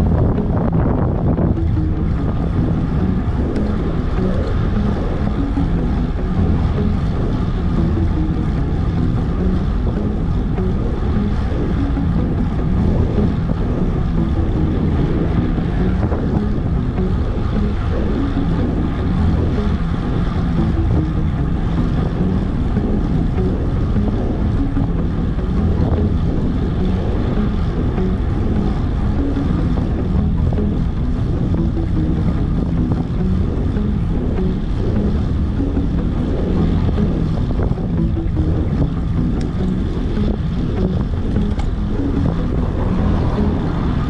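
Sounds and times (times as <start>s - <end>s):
wind rushing over microphone: 0.0s - 44.0s.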